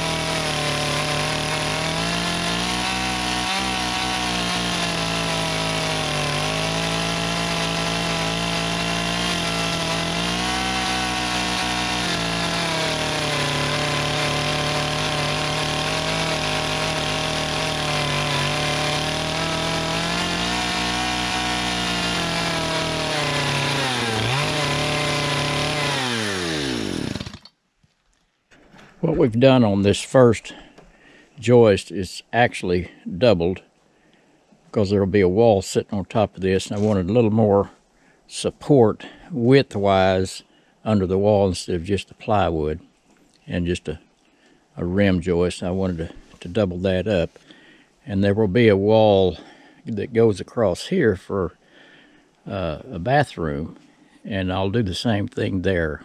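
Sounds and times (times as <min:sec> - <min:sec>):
chainsaw cutting log: 0:00.0 - 0:27.6.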